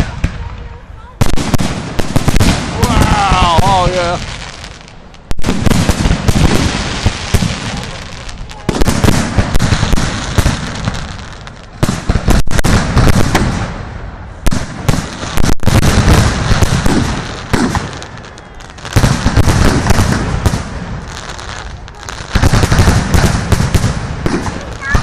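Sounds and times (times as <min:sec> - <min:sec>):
fireworks bursting: 0:00.0 - 0:25.0.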